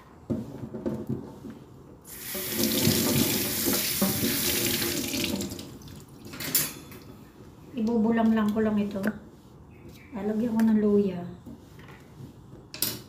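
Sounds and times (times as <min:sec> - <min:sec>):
tap water running into sink: 0:02.1 - 0:06.0.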